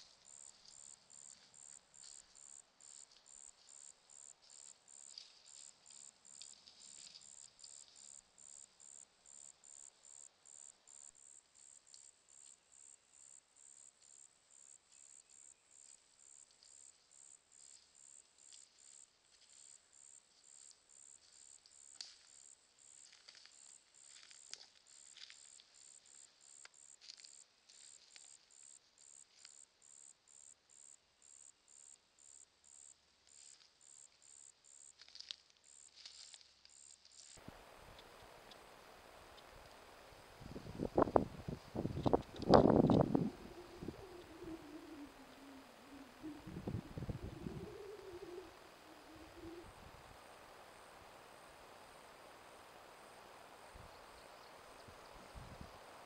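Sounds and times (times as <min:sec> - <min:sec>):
insect chirping: 0:00.0 - 0:56.0.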